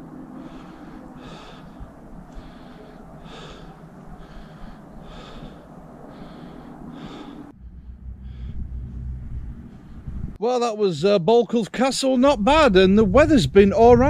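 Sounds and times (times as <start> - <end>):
low rumble: 0.0 - 10.4
steady rushing background: 0.0 - 10.4
hard quick breathing: 0.3 - 10.4.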